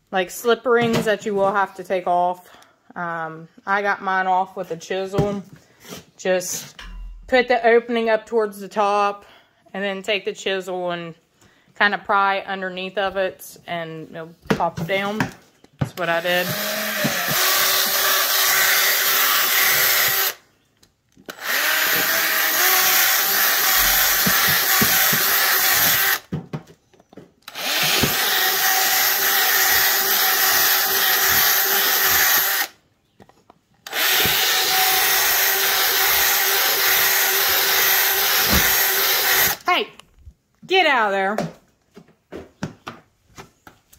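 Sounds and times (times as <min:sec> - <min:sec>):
cordless drill motor whine: 0:21.3 - 0:26.3, 0:33.9 - 0:39.6.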